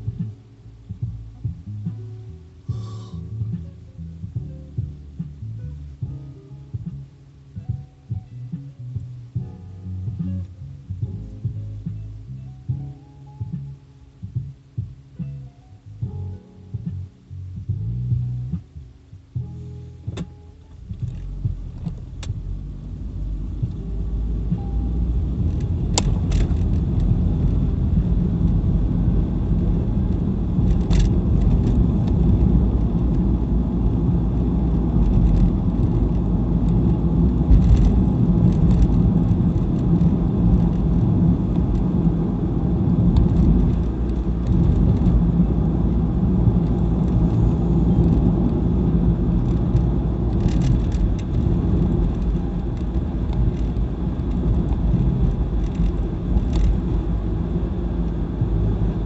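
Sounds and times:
car engine and tyre rumble: 0.0 - 59.0
light clicks or rattles: 20.2 - 22.5, 25.4 - 27.6, 30.1 - 33.3, 35.0 - 41.9, 43.2 - 45.2, 49.4 - 57.1.

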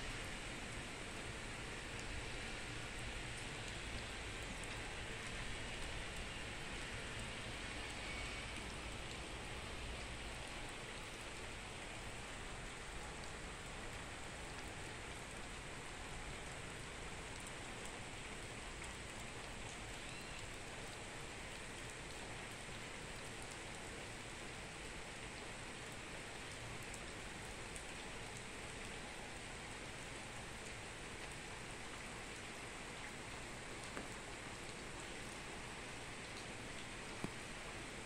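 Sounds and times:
steady rain hiss: 0.0 - 38.0
single raindrops ticking: 1.7 - 9.3, 32.3 - 35.5, 36.2 - 37.9.

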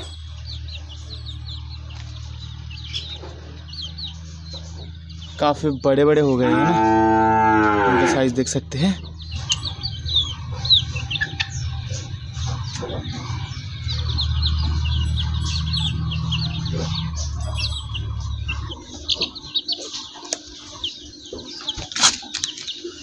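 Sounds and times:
low steady rumble: 0.0 - 19.7
chicks peeping and chirping: 0.0 - 23.0.

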